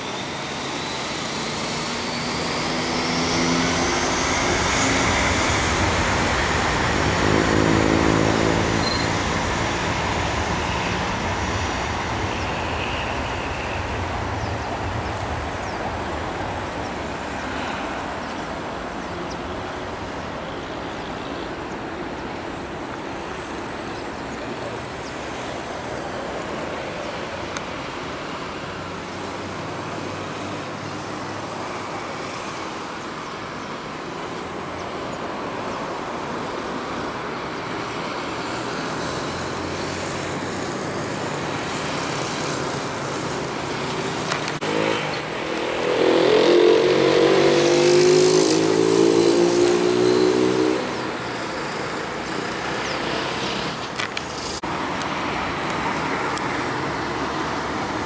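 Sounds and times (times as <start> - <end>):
jet engines rushing rumble: 0.0 - 58.0.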